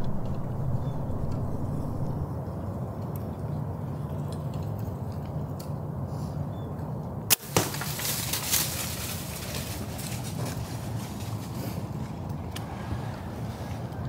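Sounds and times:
bow string crack: 0:00.0 - 0:02.2
deer running through dry leaves: 0:07.3 - 0:12.2.

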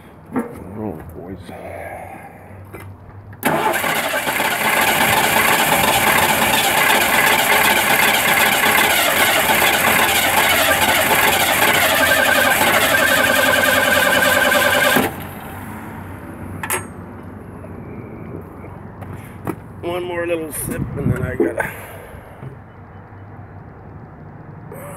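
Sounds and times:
engine cranking on starter motor: 0:03.4 - 0:15.2.

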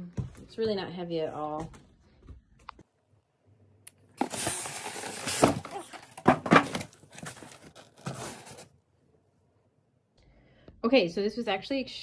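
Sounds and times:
rustling of packaging: 0:04.2 - 0:08.8.

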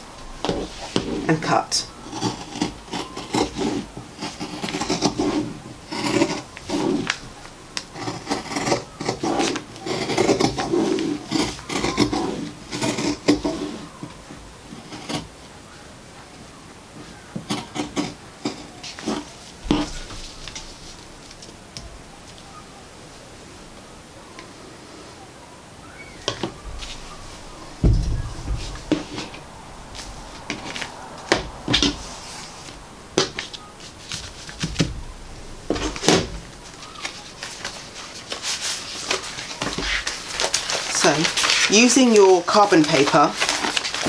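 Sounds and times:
paper and fabric rustling: 0:17.0 - 0:23.3, 0:26.2 - 0:44.0.

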